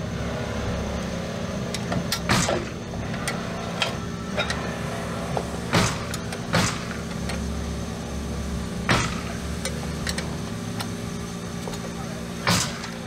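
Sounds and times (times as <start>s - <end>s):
steady low hum: 0.0s - 13.0s
sharp metal knocks: 5.7s - 7.1s, 8.9s - 9.4s.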